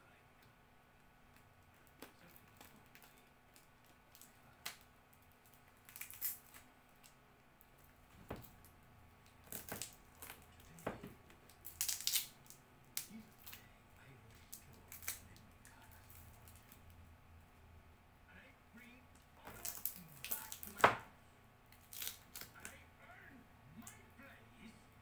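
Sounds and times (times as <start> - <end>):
plastic packaging crinkling: 1.7 - 7.2, 8.1 - 13.6, 19.4 - 21.0, 21.8 - 22.7.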